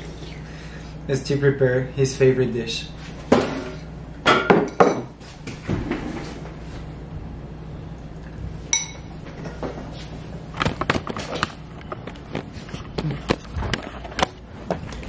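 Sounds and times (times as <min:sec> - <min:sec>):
low room hum: 0:00.0 - 0:15.0
tableware clink: 0:03.6 - 0:05.1, 0:08.7 - 0:09.1.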